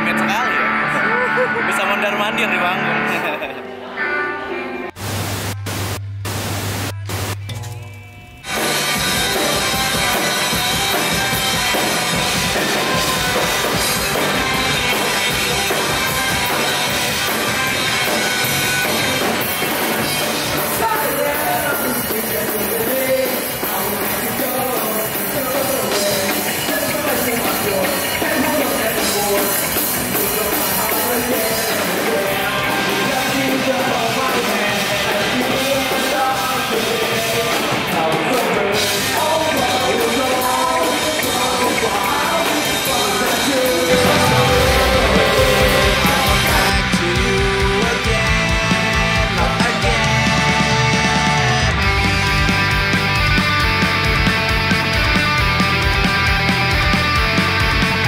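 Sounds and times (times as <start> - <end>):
rock music with singing: 0.0 - 5.0, 6.6 - 58.0
drum kit: 5.0 - 58.0.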